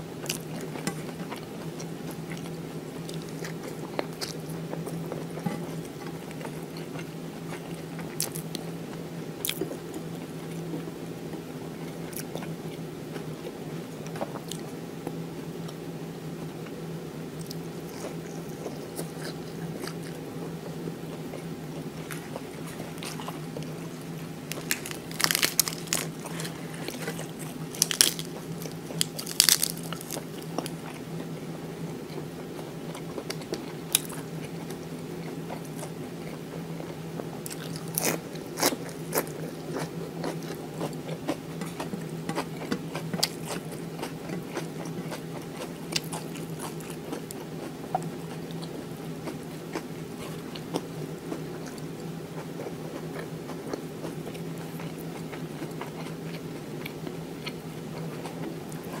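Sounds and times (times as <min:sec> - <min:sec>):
chewing lettuce: 0:00.1 - 0:15.9, 0:16.5 - 0:59.0
wet crunches: 0:22.8 - 0:30.8.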